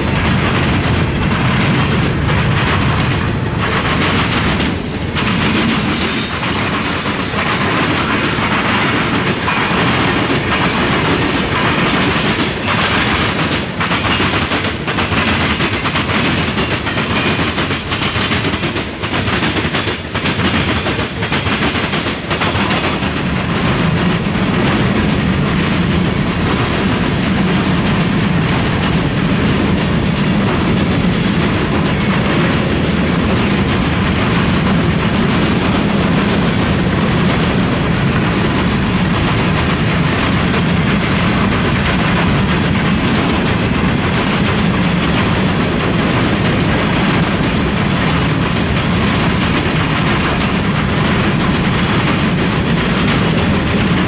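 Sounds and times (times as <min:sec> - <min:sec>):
freight train wheels on rails: 0:00.0 - 0:54.0
sharp rail clacks: 0:00.0 - 0:54.0.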